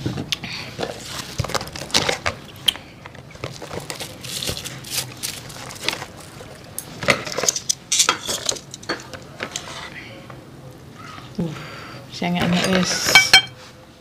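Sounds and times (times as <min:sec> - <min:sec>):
tableware clicking and knocking: 0:07.0 - 0:09.6, 0:12.4 - 0:13.6.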